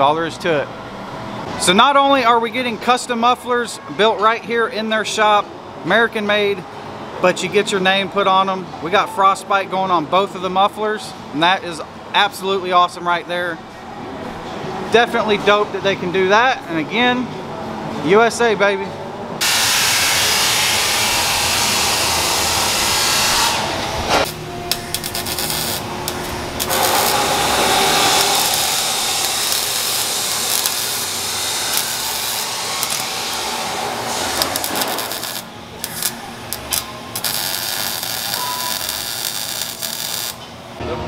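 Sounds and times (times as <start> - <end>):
arc welding crackling hiss: 19.4 - 40.4.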